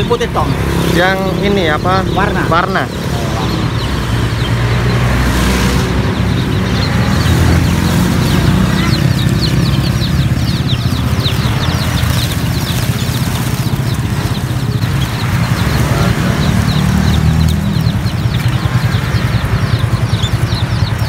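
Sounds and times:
birds chirping in a cage: 0.0s - 21.0s
low engine rumble: 0.0s - 21.0s.

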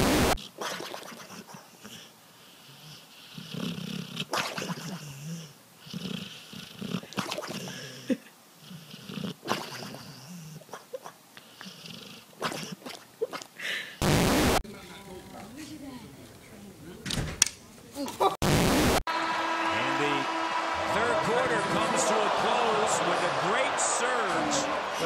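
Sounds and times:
dog snoring: 1.7s - 7.9s, 8.6s - 10.8s, 11.4s - 12.7s.

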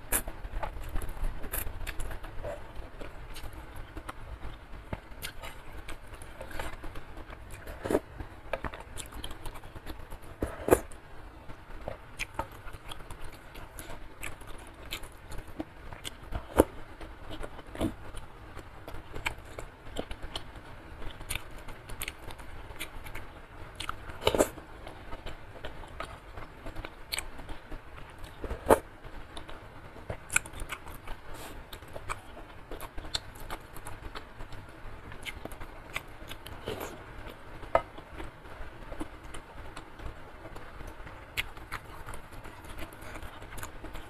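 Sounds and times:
wet chewing: 0.1s - 11.0s.

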